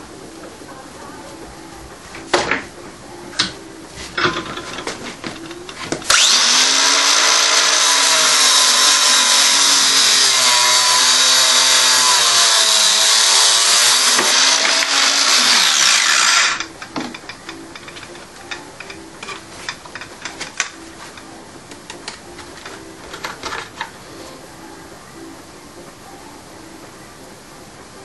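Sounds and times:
angle grinder cutting metal rod: 6.0 - 18.1.

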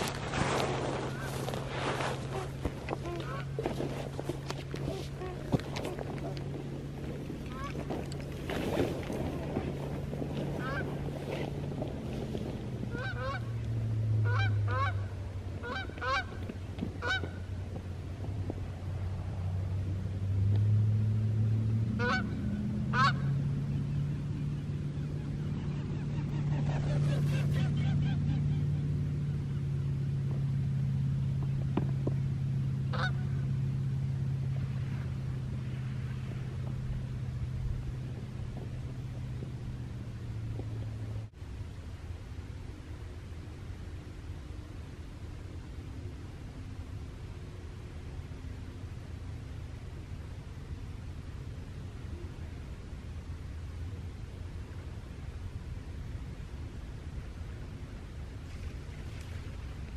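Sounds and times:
geese honking: 0.0 - 8.2, 9.1 - 11.9, 12.8 - 17.5, 22.0 - 29.4, 32.8 - 33.5
low steady hum: 0.0 - 59.9.

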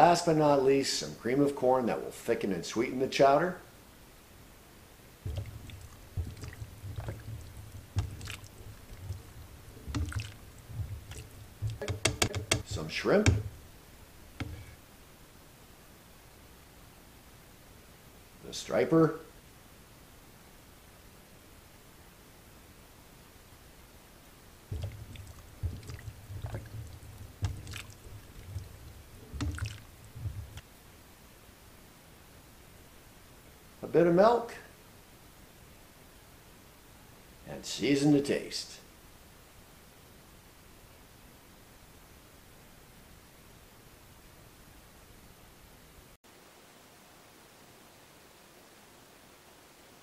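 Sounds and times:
wet squishy plops: 5.2 - 13.7, 14.4 - 14.8, 24.7 - 30.6
low handling knocks: 5.2 - 13.8, 14.4 - 14.8, 24.7 - 30.6
spoon scraping tin can: 5.3 - 13.6, 24.7 - 30.6.

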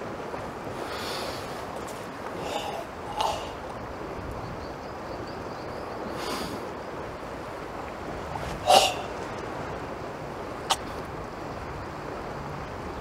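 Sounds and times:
wind noise on microphone: 0.0 - 13.0
person exhaling forcefully: 2.4 - 3.7, 8.6 - 9.2.

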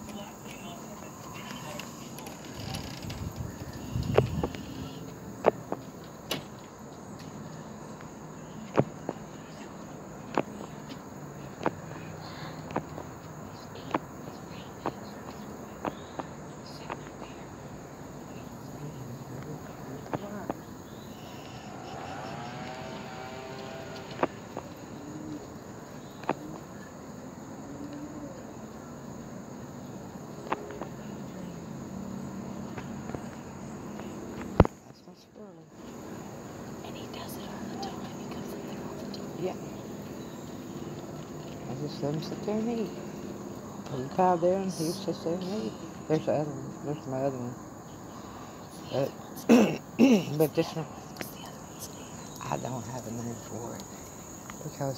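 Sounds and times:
crickets trilling: 0.0 - 54.9
insects droning: 0.0 - 54.9
outdoor background noise: 0.0 - 54.9.

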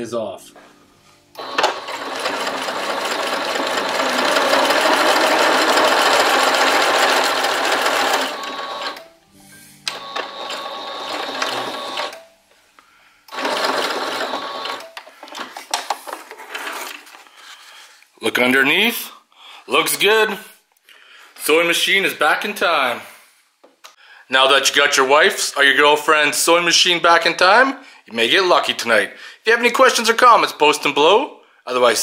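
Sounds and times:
sewing machine stitching canvas: 1.4 - 9.0, 9.9 - 12.1, 13.3 - 14.9.

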